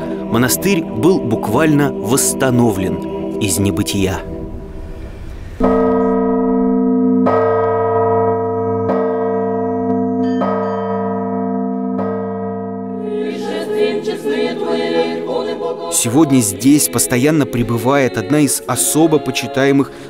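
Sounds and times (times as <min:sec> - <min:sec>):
church bell tolling: 0:00.0 - 0:15.3.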